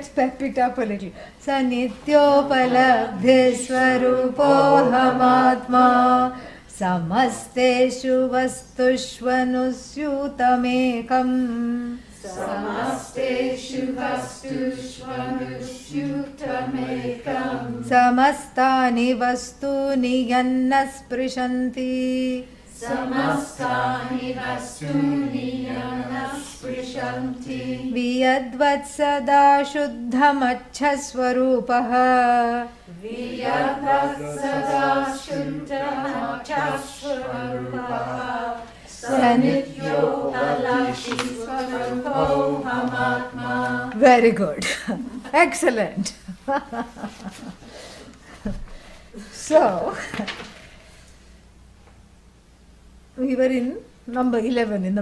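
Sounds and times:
chorus chanting in unison: 2.1 - 6.4, 12.1 - 18.1, 22.7 - 28.4, 32.9 - 44.1.

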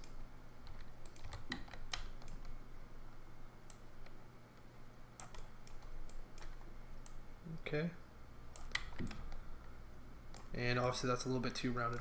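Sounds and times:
mouse and keyboard clicks: 0.0 - 2.6, 5.2 - 7.2, 8.6 - 9.4
faint low hum: 0.0 - 12.0.

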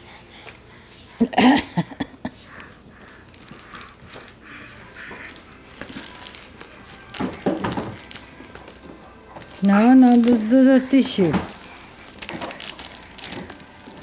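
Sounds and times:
plastic wrapping crinkling: 3.0 - 14.0.

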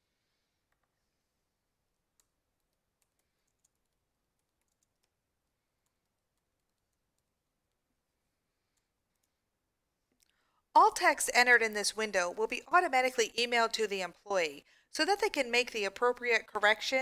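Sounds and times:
computer keyboard typing: 2.1 - 7.8, 8.8 - 9.4.

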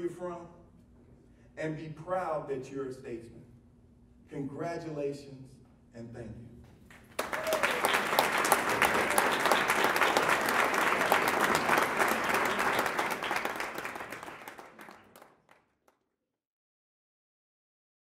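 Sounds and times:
audience applauding: 6.9 - 15.6.

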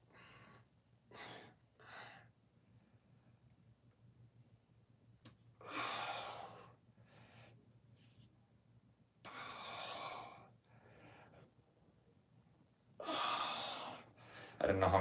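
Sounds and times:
man breathing heavily: 0.0 - 2.4, 5.6 - 7.6, 9.3 - 11.5, 13.0 - 14.6.

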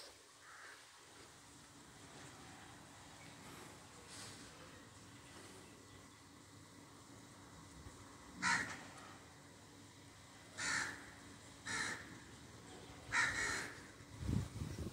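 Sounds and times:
crow cawing: 0.4 - 1.0, 8.4 - 9.2, 10.5 - 12.3, 13.1 - 13.9.

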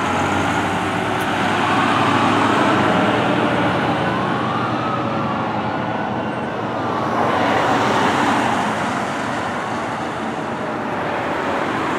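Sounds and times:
faint fire engine siren: 0.0 - 11.9
road traffic noise: 0.0 - 11.9.

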